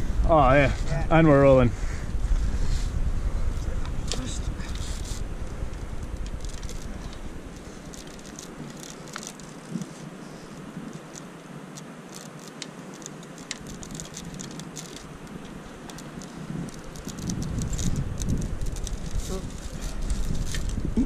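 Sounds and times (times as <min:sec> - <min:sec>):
wind hissing: 0:00.0 - 0:21.0.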